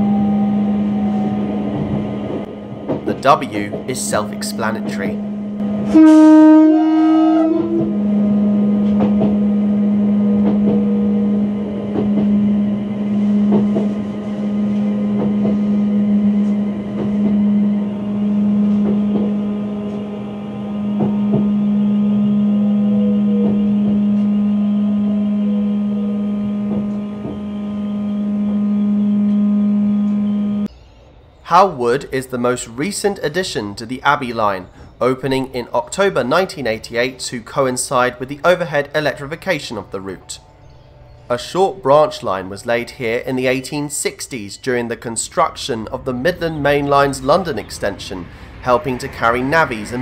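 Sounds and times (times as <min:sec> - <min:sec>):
train running hum: 0:00.0 - 0:50.0
train clicks: 0:01.7 - 0:06.0, 0:08.8 - 0:09.4, 0:10.4 - 0:10.9, 0:11.6 - 0:15.8, 0:16.4 - 0:17.4, 0:18.7 - 0:20.1, 0:20.9 - 0:21.5, 0:26.6 - 0:27.5
electric train horn blast: 0:04.2 - 0:30.7.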